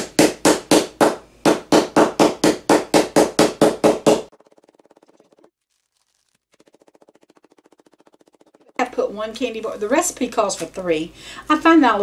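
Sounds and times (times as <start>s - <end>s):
wooden mallet pounding chocolate: 0.0s - 5.4s.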